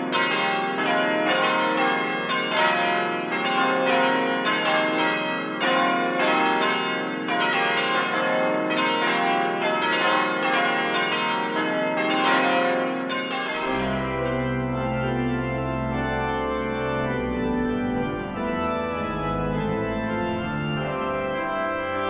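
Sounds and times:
church bells pealing: 0:00.0 - 0:22.0.

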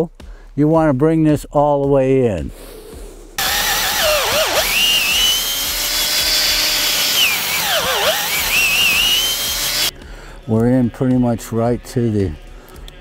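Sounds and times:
cordless drill whining: 0:03.4 - 0:09.9
wood chips tearing out: 0:03.4 - 0:09.9.

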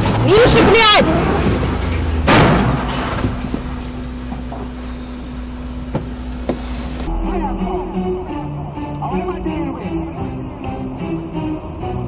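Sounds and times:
low vehicle rumble: 0:00.0 - 0:10.7
loud crash: 0:01.4 - 0:03.8.

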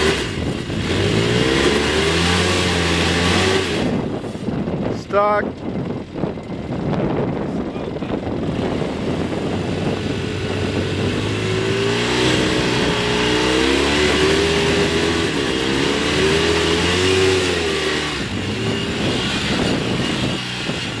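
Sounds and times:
off-road vehicle engine revving: 0:00.0 - 0:21.0.

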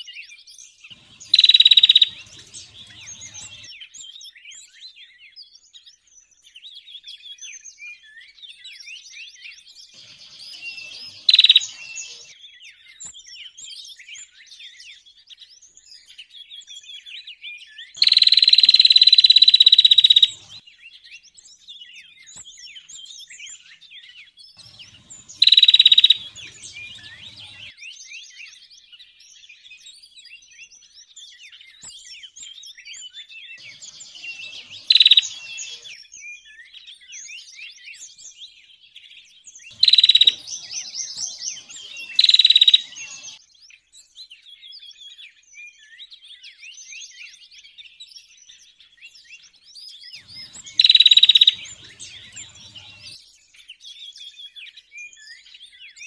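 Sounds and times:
songbirds chirping and twittering: 0:00.0 - 0:56.0
loud harsh bird call: 0:00.9 - 0:03.7, 0:10.0 - 0:12.3, 0:18.0 - 0:20.6, 0:24.6 - 0:27.7, 0:33.6 - 0:36.0, 0:39.7 - 0:43.4, 0:50.2 - 0:53.2.

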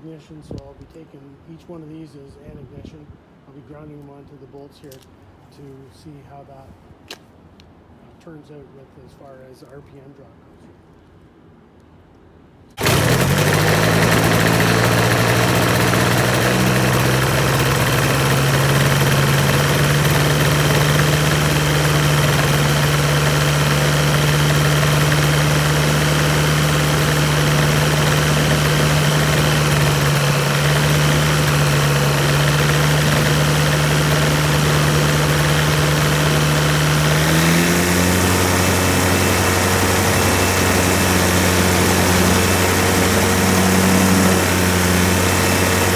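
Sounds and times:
aircraft engine and propeller running: 0:12.8 - 0:45.9.

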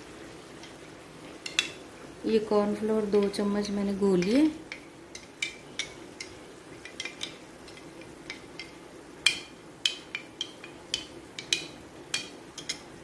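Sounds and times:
faint steady hum: 0:00.0 - 0:13.0
spoon clinking against glass bowl: 0:09.3 - 0:12.8.

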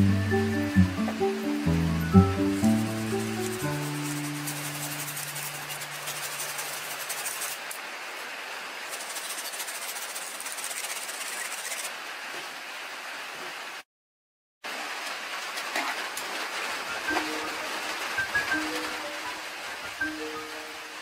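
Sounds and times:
soup boiling and bubbling: 0:00.2 - 0:07.7.

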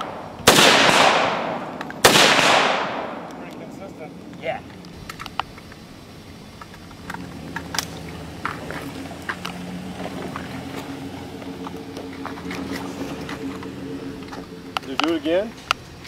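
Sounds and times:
low motor hum: 0:00.0 - 0:16.0
sharp clicks and taps: 0:04.3 - 0:05.8
footsteps on sandy ground: 0:08.4 - 0:14.8.

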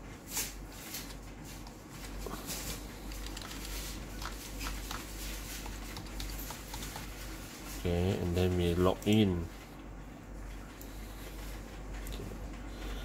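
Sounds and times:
steady low hum: 0:00.0 - 0:13.0
computer keyboard keys clicking: 0:03.0 - 0:07.2.

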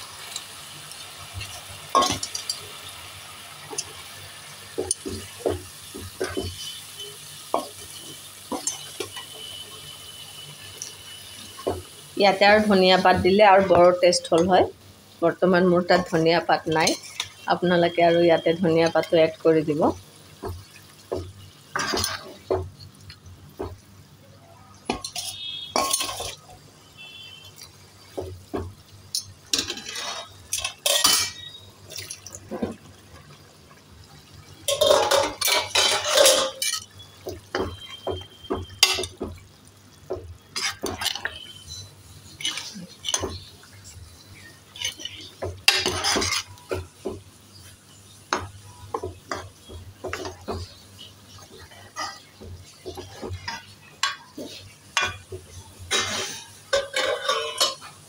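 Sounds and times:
ladle scraping and clinking pot: 0:21.7 - 0:22.5, 0:24.9 - 0:26.5, 0:29.1 - 0:32.8, 0:34.7 - 0:38.0, 0:38.6 - 0:39.3, 0:40.5 - 0:43.5, 0:44.7 - 0:46.8, 0:55.9 - 0:58.0.

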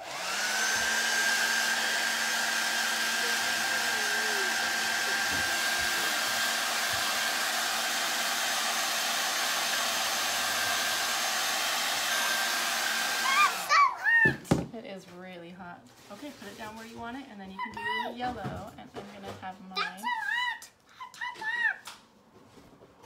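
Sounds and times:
hair dryer running: 0:00.0 - 0:14.6.

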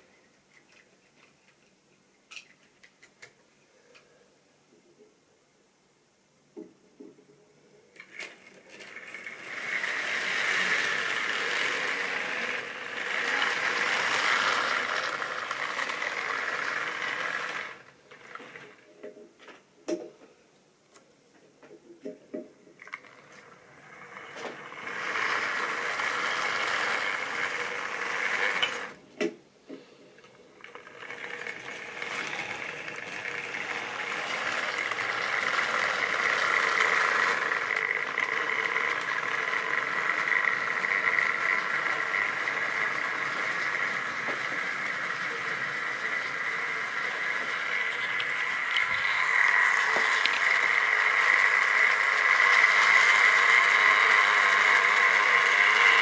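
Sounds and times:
model train whirring on track: 0:08.0 - 0:18.8, 0:22.8 - 0:29.0, 0:30.6 - 0:56.0
wheels clicking over rails: 0:08.0 - 0:19.2, 0:22.8 - 0:29.0, 0:30.2 - 0:56.0.

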